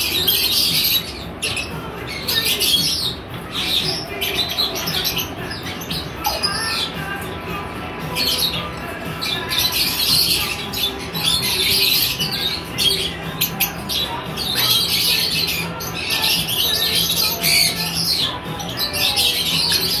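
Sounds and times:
flock of lovebirds chattering: 0.0s - 20.0s.

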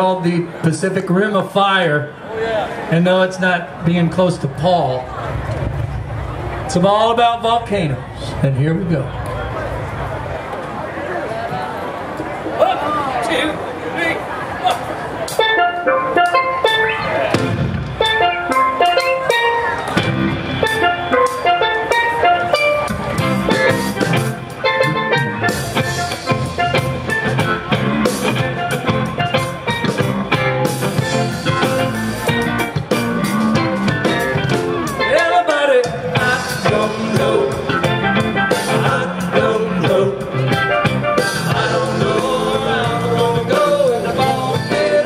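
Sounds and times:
keyboards: 0.0s - 45.0s
bass guitar: 3.7s - 12.4s, 14.6s - 45.0s
drum kit: 14.7s - 45.0s
electric guitars: 15.3s - 45.0s.

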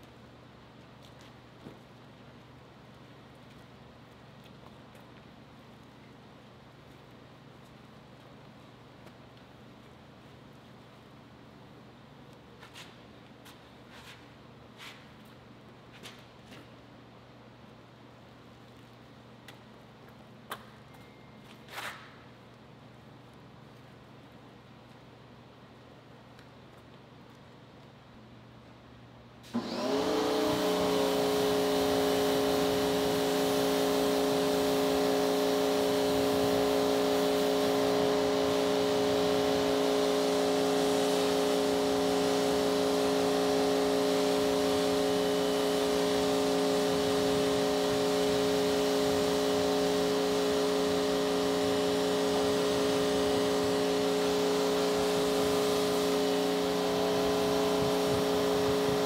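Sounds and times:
pressure washer pump humming: 29.5s - 59.0s.

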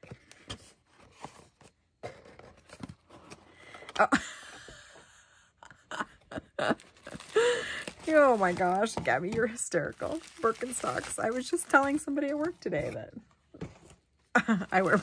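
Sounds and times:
bubble wrap rustling: 6.8s - 13.1s, 14.4s - 15.0s.

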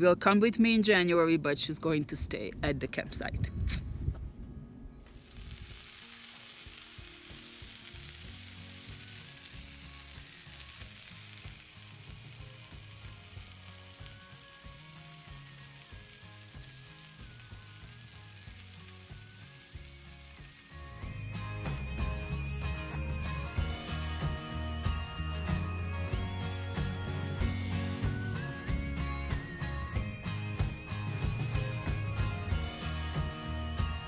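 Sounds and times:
soft background music: 4.5s - 34.0s
food sizzling in a pan: 5.1s - 21.8s.

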